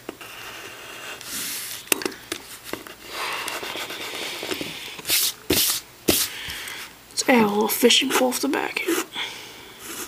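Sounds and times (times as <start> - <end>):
pencil scratching on paper: 0.2 - 1.8, 3.3 - 4.5.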